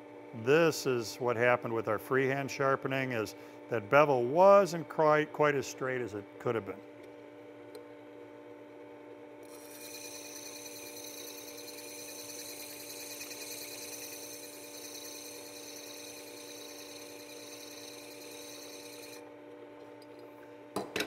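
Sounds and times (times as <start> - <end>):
sharpener motor humming: 9.4 - 19.3
steel grinding on abrasive disc: 9.5 - 19.2.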